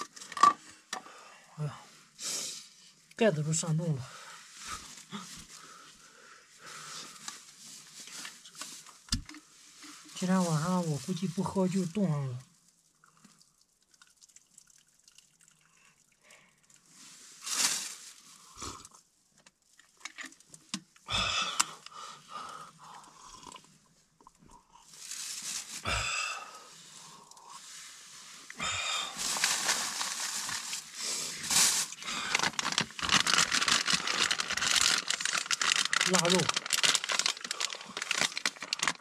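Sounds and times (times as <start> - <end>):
plastic bag rustling: 6.7 - 12.0, 17.3 - 18.5, 24.9 - 26.0, 29.1 - 39.0
drink poured from a flask: 13.0 - 16.9
person sipping: 21.1 - 24.9, 28.4 - 39.0.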